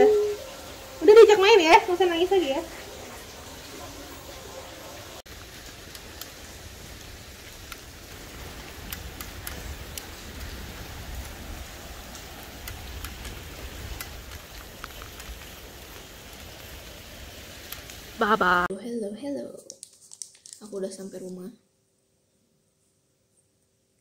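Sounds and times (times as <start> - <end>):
tyres hissing on wet road: 0.0 - 18.7
wind rumble on microphone: 6.8 - 15.6.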